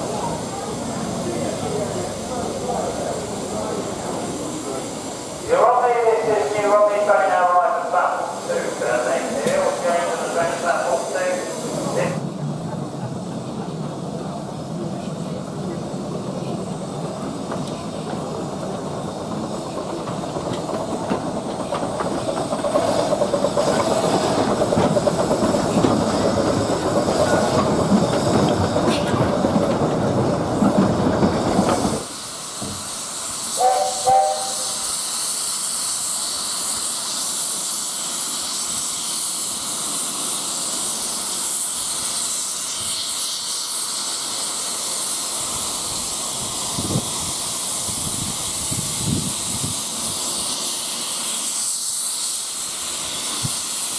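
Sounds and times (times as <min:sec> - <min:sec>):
steam hissing: 0:00.0 - 0:53.9
steam locomotive rumbling: 0:00.0 - 0:53.9
train whistle toots: 0:33.6 - 0:34.9.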